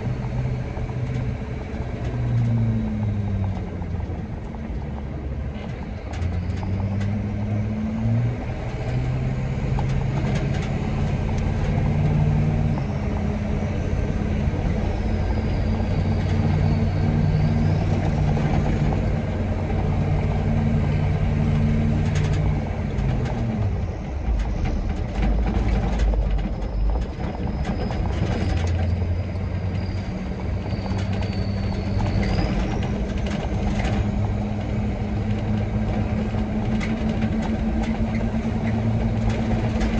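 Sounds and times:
truck engine running: 0.0 - 39.9.

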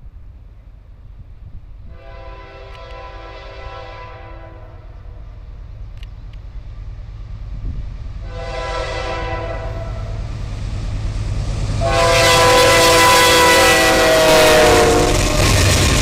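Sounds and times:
engine and rail rumble: 0.0 - 16.0
locomotive air horn: 1.9 - 5.1, 8.2 - 10.2, 11.8 - 15.5.

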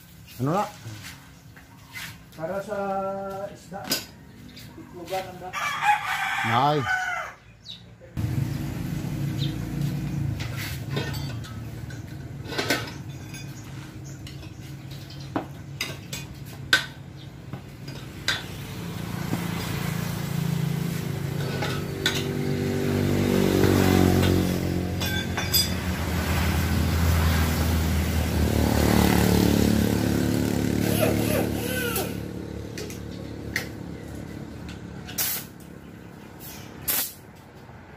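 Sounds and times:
engine running: 8.2 - 35.9
tools clinking on metal: 10.9 - 13.7, 25.0 - 25.9.

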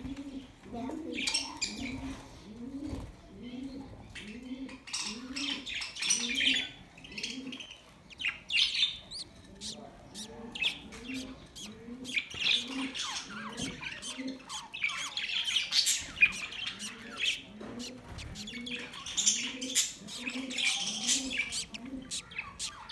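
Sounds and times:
budgerigars chattering: 5.8 - 22.9.

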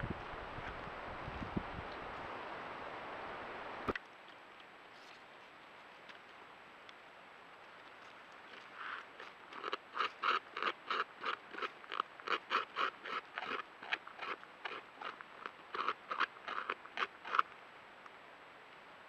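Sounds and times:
beaver gnawing wood: 7.8 - 17.6.

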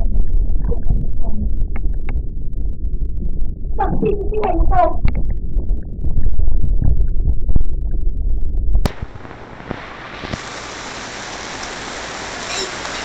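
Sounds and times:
loud low rumbling: 0.0 - 12.3
rain falling: 8.9 - 13.0.

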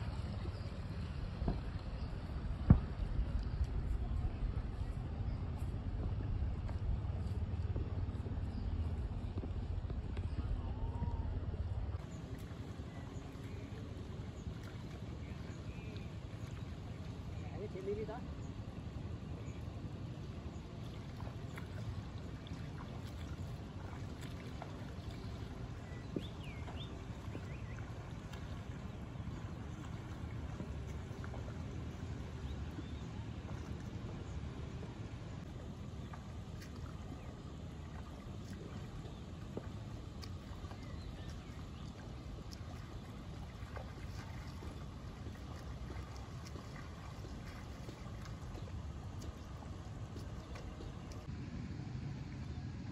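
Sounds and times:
wind buffeting microphone: 0.0 - 13.6
birds chirping: 22.2 - 34.8.

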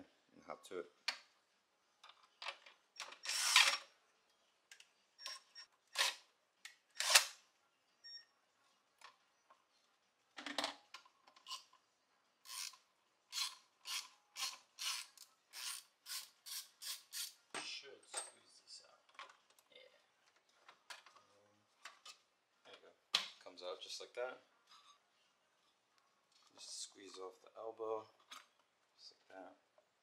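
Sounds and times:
cordless drill running in bursts: 3.3 - 3.7.

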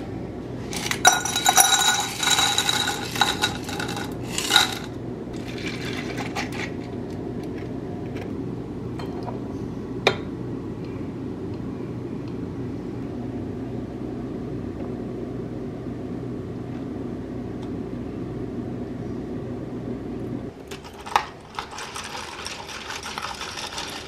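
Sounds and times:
steady low hum: 0.0 - 24.0
ice clattering into glass jar: 0.7 - 6.7, 20.7 - 24.0
liquid pouring over ice: 20.8 - 24.0.

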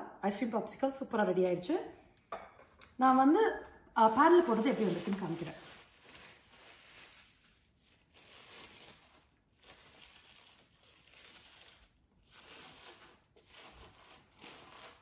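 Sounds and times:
cling film crinkling: 4.2 - 15.0.

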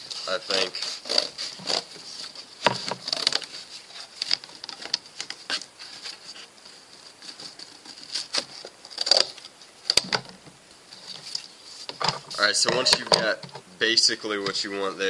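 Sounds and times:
scissors cutting cardboard: 0.2 - 9.5.

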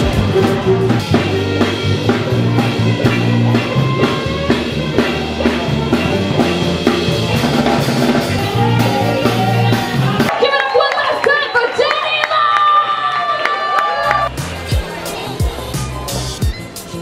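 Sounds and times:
bass guitar low notes: 0.0 - 10.3
drum kit beating: 0.0 - 10.4, 14.0 - 17.0.

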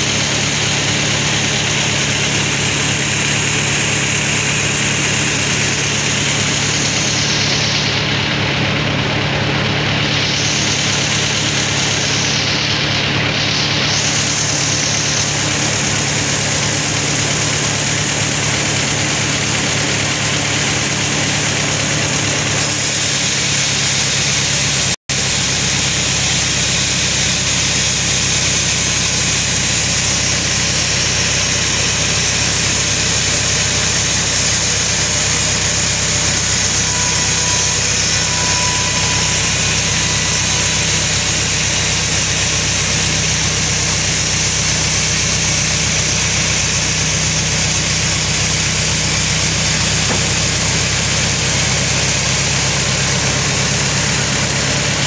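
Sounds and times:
band saw cutting log: 0.0 - 18.2, 22.6 - 51.2
sawmill drive humming: 0.0 - 18.2, 26.0 - 51.6.

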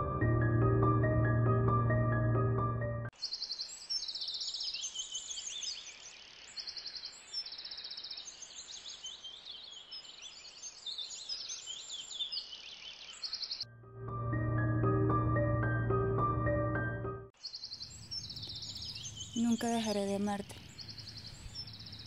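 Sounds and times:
songbirds chirping and trilling: 3.2 - 13.6, 17.4 - 22.0.

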